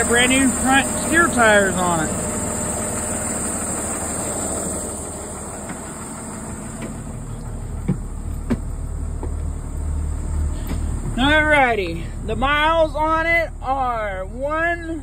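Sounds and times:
diesel bus engine idling: 0.0 - 15.0
footsteps on bus steps: 5.3 - 11.3.

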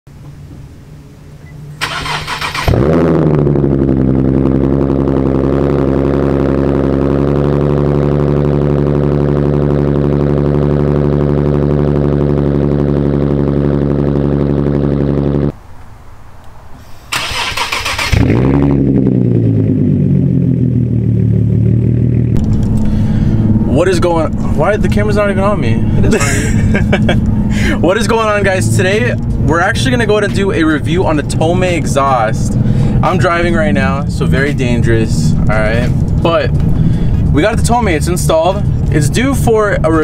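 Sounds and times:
car engine starting and idling: 0.1 - 15.6, 16.9 - 40.0
starter motor cranking: 1.8 - 2.9, 17.1 - 18.3.

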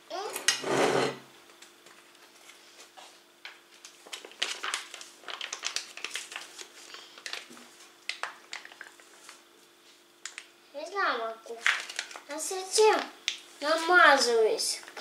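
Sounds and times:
plastic pouch crinkling: 3.8 - 9.5, 11.6 - 12.3.

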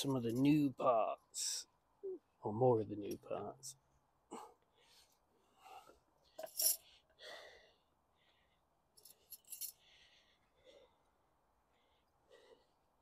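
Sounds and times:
small metal parts clinking: 6.4 - 6.8, 9.0 - 9.8.

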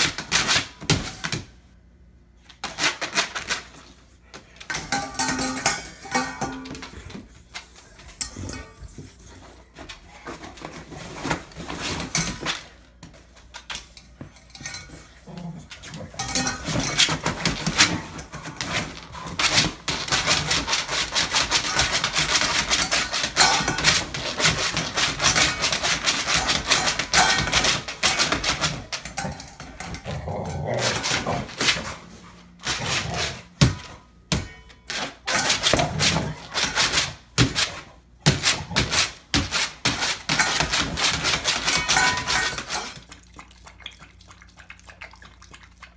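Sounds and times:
metal bowl clattering: 4.7 - 7.1, 8.1 - 8.9, 14.3 - 18.8, 21.2 - 31.5, 40.2 - 43.1.

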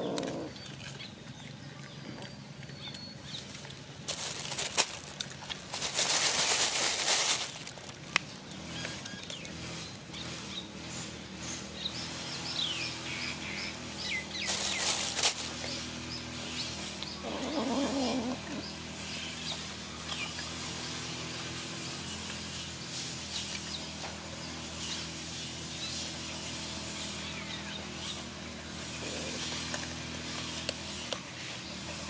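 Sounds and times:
cats hissing: 0.0 - 0.6, 16.7 - 18.8
wavering animal cry: 17.1 - 18.6.

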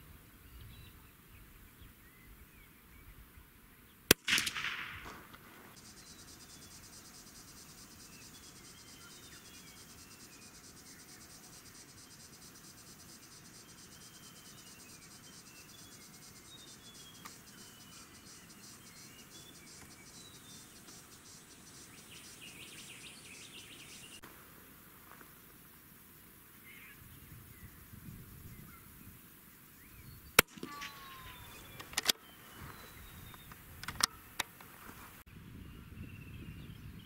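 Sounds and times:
rifle shot: 4.1 - 5.8, 30.4 - 31.0
short bird chirps: 30.0 - 33.5.

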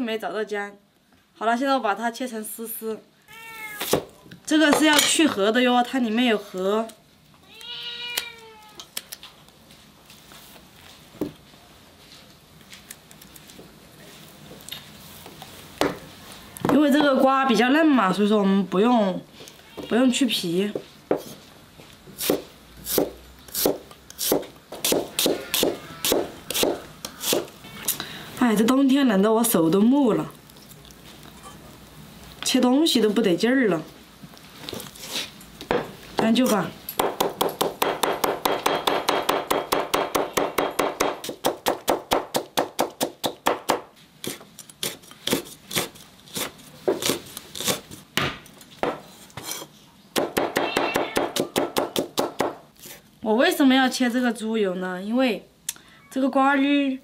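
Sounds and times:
cleaver chopping on wooden block: 22.2 - 27.5, 37.0 - 43.8.

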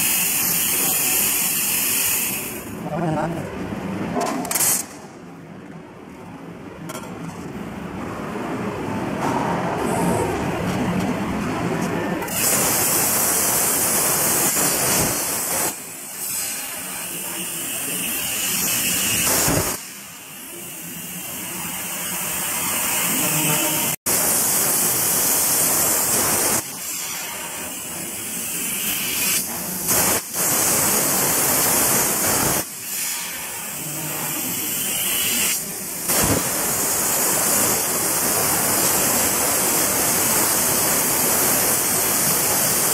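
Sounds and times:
plasma cutter torch hissing: 0.0 - 2.8, 12.2 - 42.9.

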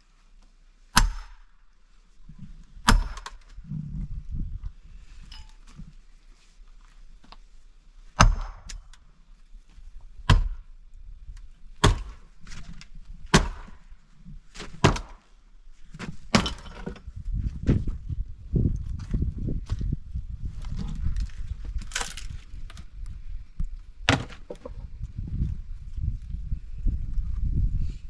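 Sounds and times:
axe chopping wood: 0.9 - 1.5, 2.8 - 3.5, 8.2 - 9.0, 10.2 - 10.7, 11.8 - 12.6, 13.2 - 13.9, 14.5 - 15.2, 16.0 - 17.0, 24.0 - 24.7
wood cracking as it splits: 11.4 - 13.9, 14.5 - 15.3, 21.0 - 22.9.

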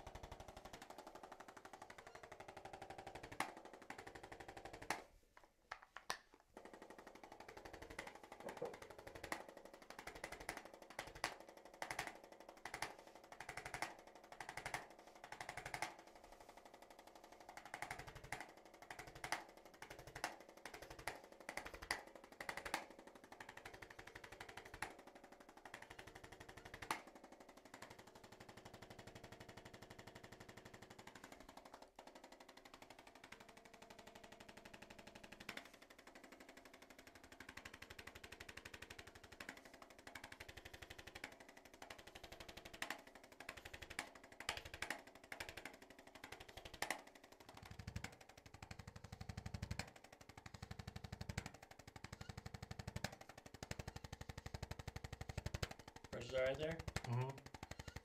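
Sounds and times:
electric instrument tapping rapidly: 0.0 - 58.0.

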